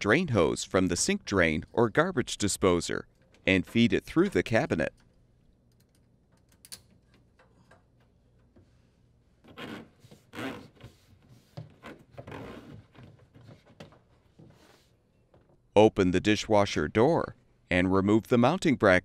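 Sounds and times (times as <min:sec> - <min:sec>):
rubber hose scraping: 0:09.4 - 0:15.0.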